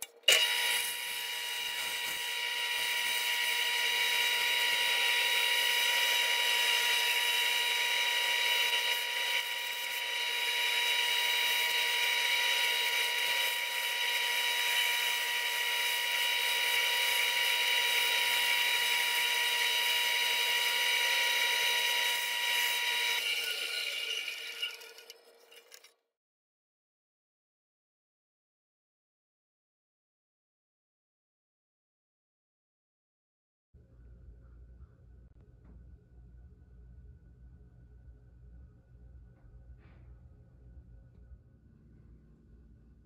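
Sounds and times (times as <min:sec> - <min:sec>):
bandsaw cutting wood: 0:00.3 - 0:25.9.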